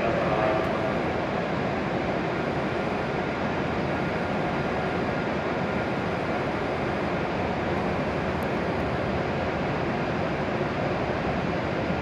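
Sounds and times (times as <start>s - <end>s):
train equipment whir: 0.0s - 3.0s
faint high whine: 0.0s - 9.2s.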